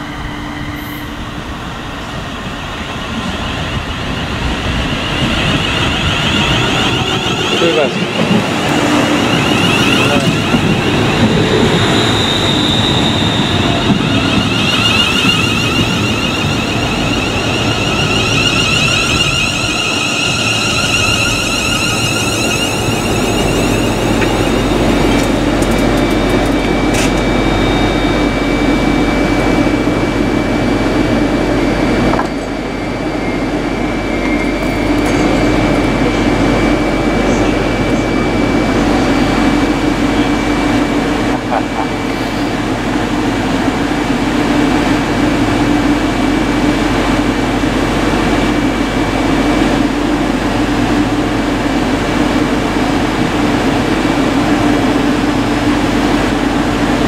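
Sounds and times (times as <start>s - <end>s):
thin high whine: 0.0s - 57.0s
train equipment humming: 0.0s - 57.0s.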